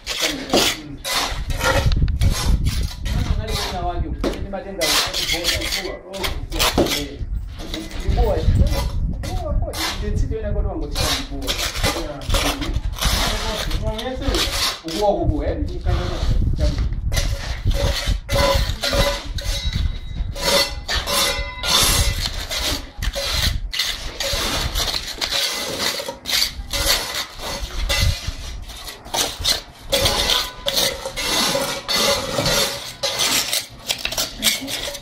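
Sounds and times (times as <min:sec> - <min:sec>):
trowel scraping wet concrete: 0:00.0 - 0:35.0
trowel clinking against metal mould: 0:29.2 - 0:35.0.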